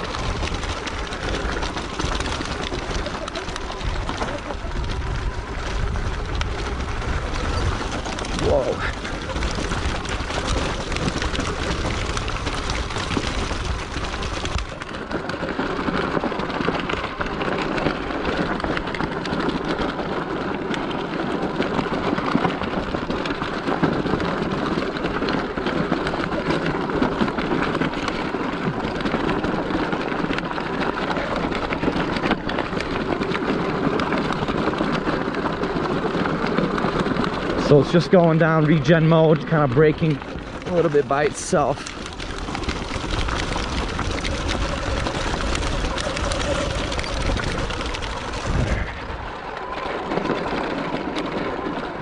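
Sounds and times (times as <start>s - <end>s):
bike suspension working: 0.0s - 52.0s
tyres crunching over loose rock: 0.0s - 52.0s
heavy low rumble: 37.3s - 52.0s.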